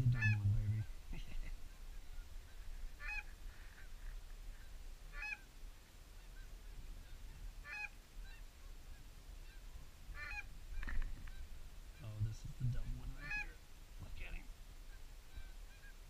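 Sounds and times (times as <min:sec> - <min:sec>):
geese honking: 0:00.0 - 0:01.0, 0:01.6 - 0:05.5, 0:06.2 - 0:12.2, 0:13.0 - 0:13.6.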